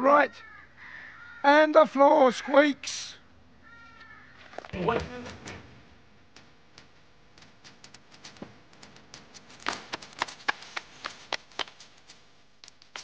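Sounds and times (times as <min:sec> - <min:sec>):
hands clapping and slapping knees: 0:06.7 - 0:13.0.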